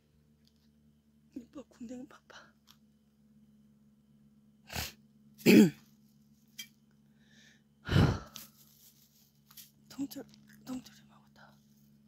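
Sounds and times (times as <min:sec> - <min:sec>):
man clearing throat: 0:05.4 - 0:05.8
man coughing: 0:05.4 - 0:05.8.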